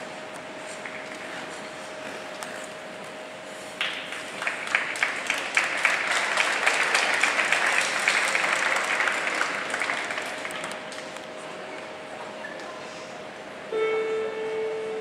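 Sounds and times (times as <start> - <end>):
audience applauding: 3.8 - 11.2.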